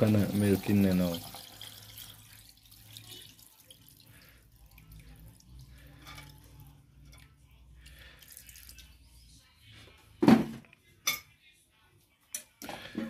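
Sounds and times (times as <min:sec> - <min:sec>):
liquid dripping and trickling: 0:00.0 - 0:09.0.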